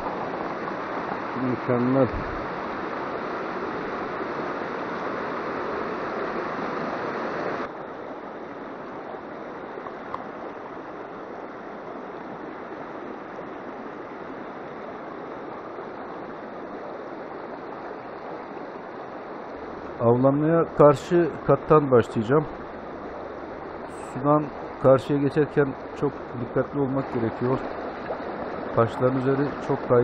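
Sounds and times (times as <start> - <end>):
rapids rushing over stones: 11.6 - 30.0.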